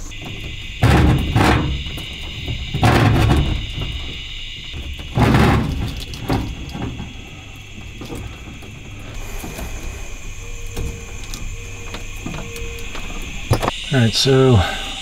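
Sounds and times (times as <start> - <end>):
high whine: 0.0 - 15.0
cable scraping and dragging: 8.9 - 13.7.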